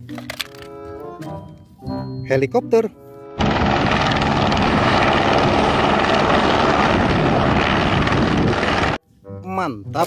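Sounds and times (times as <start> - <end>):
helicopter hovering: 3.4 - 9.0.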